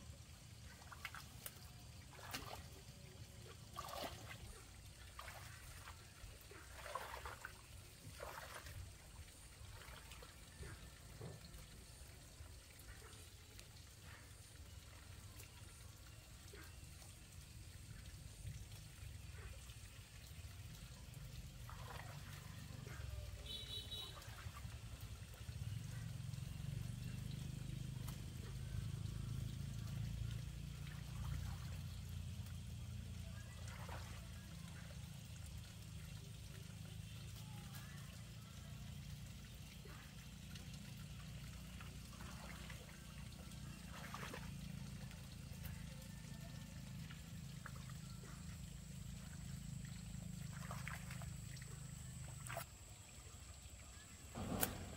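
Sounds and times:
faint trickling water: 0.0s - 54.9s.

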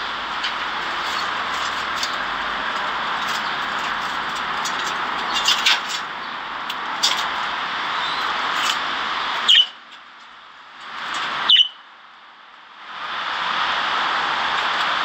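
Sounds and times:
steady rushing background noise: 0.0s - 15.0s
budgerigars chirping: 9.4s - 9.8s, 11.4s - 11.8s.

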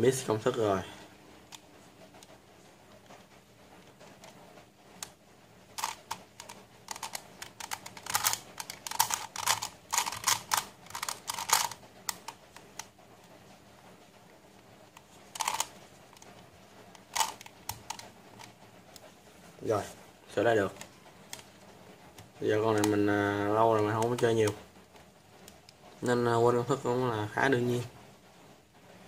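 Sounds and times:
plastic puzzle clicking: 5.8s - 12.9s, 15.0s - 16.4s, 17.0s - 18.6s, 20.7s - 24.6s.

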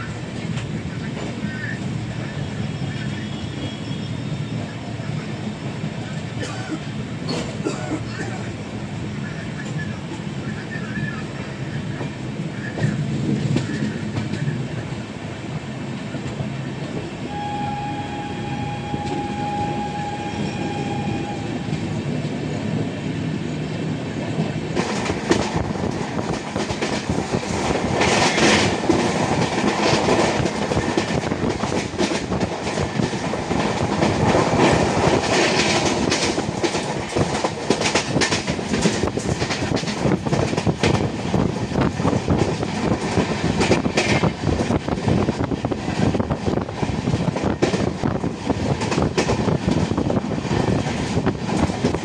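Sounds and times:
train running noise: 0.0s - 52.0s
wheels clattering on rails: 24.4s - 52.0s.

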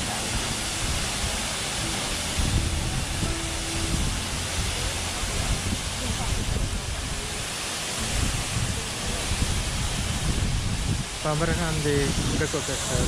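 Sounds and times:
waterfall roaring: 0.0s - 13.0s
wind buffeting microphone: 2.3s - 7.4s, 8.0s - 13.0s.

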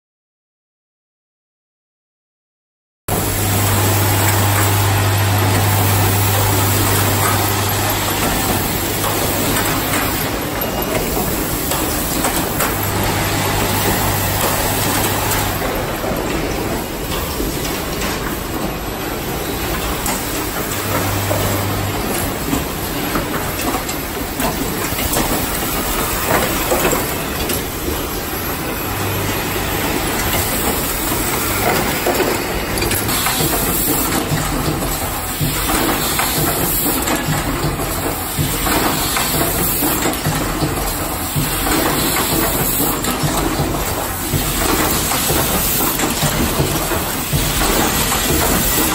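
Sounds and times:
low machine hum: 3.1s - 33.7s
machines clattering: 3.1s - 48.9s.

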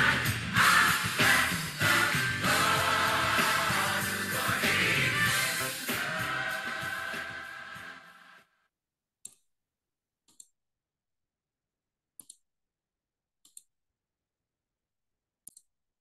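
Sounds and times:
choir music: 0.0s - 8.5s.

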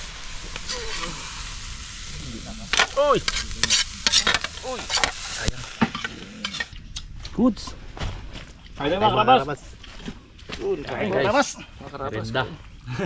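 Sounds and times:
faint sizzle: 0.0s - 6.7s
ladle scraping rice in wok: 2.7s - 6.7s.

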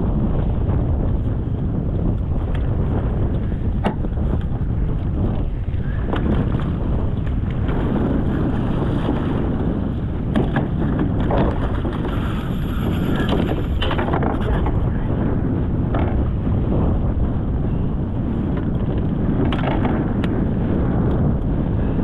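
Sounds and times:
wind buffeting microphone: 0.0s - 22.0s
water lapping at kayak hull: 2.2s - 15.1s.

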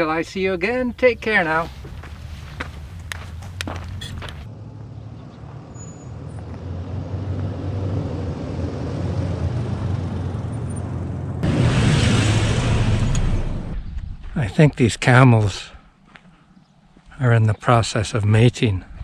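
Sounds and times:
tyres on gravelly sand: 0.0s - 4.5s.

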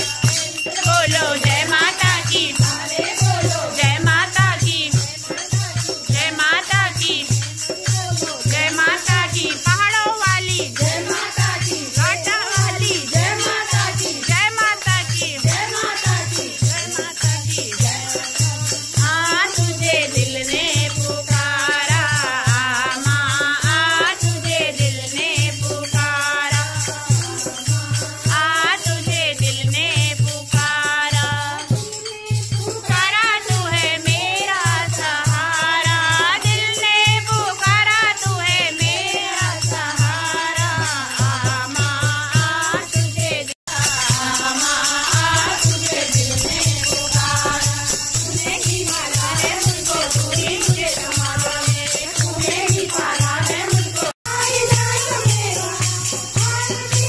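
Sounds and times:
jingling tongs and clappers: 0.0s - 28.9s, 40.6s - 57.0s
women singing devotional song: 0.0s - 57.0s.

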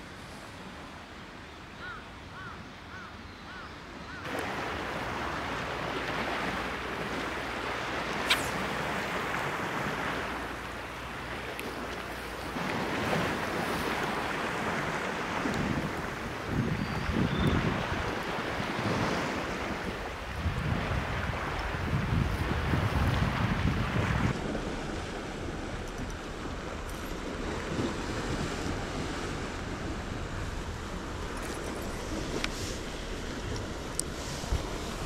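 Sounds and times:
wind: 0.0s - 35.0s
sea water lapping against a seawall: 4.2s - 35.0s
sharp click: 8.1s - 8.6s
wind buffeting on microphone: 11.4s - 35.0s.

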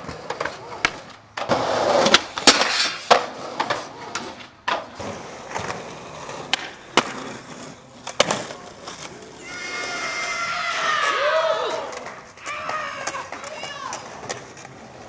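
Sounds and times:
skateboard grinding on metal rail: 0.0s - 10.9s
skateboard clacking: 0.0s - 15.0s
skateboard wheels rolling: 0.0s - 15.0s.

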